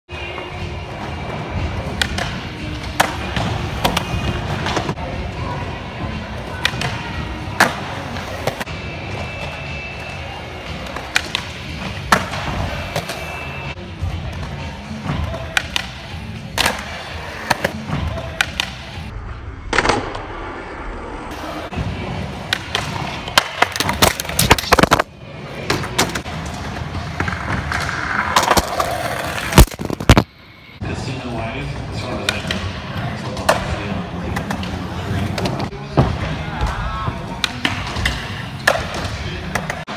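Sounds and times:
skateboard wheels rolling on concrete: 0:20.4 - 0:30.2.

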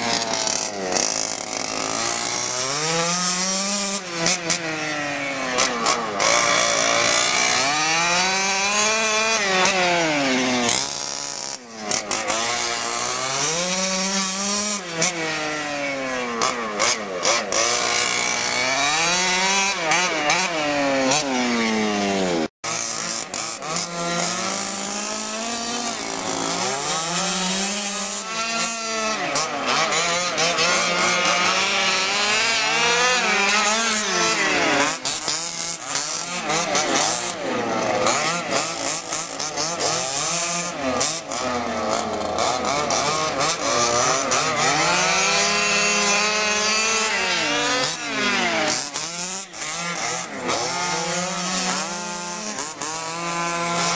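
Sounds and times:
small two-stroke engine revving: 0:00.0 - 0:53.9.

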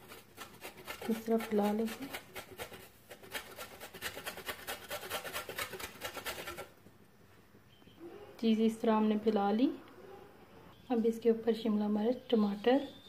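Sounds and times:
cheese grating on metal grater: 0:00.0 - 0:06.7.

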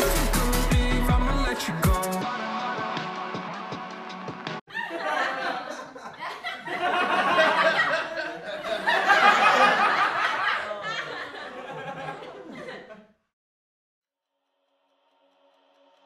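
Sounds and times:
people laughing and exclaiming: 0:04.7 - 0:13.0.

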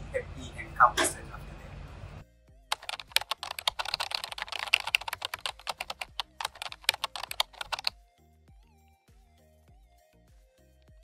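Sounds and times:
faint background music: 0:00.0 - 0:11.0
keyboard key clicks: 0:02.7 - 0:07.9.

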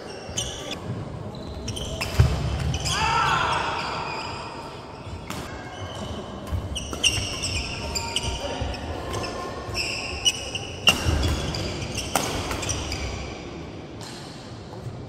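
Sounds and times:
sneakers squeaking on wooden floor: 0:00.0 - 0:13.3
racket hitting shuttlecock: 0:10.8 - 0:12.8.

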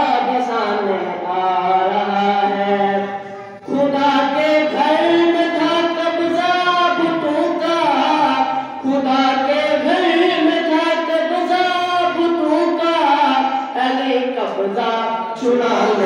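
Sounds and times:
boy singing into microphone: 0:00.0 - 0:16.0
singer breathing: 0:13.5 - 0:13.8.

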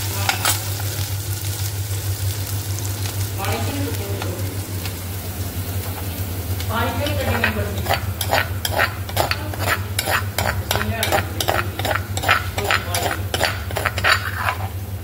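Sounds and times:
spices sizzling in hot oil: 0:00.0 - 0:15.0
steady low hum: 0:00.0 - 0:15.0
spoon scraping cooking pan: 0:07.0 - 0:14.8.

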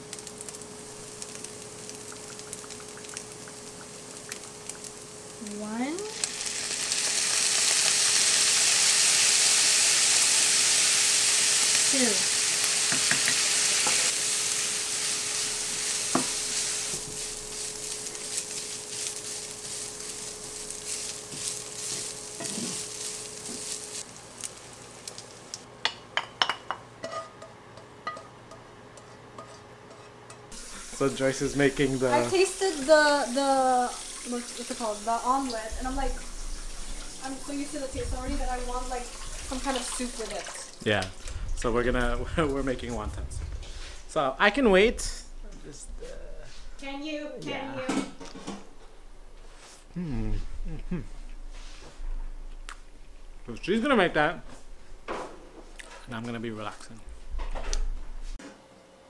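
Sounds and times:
meat and onion sizzling in pan: 0:00.0 - 0:43.0
wooden spoon stirring: 0:16.1 - 0:24.0.

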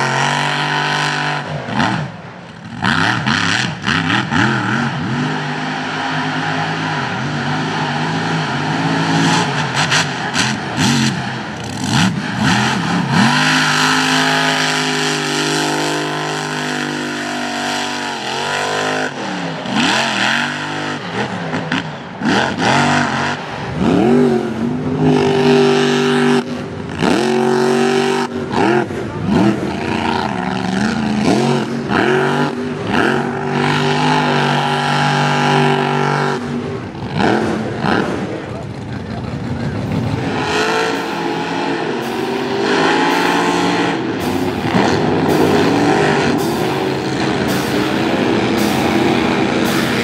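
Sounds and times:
truck engine revving: 0:00.0 - 0:50.0.

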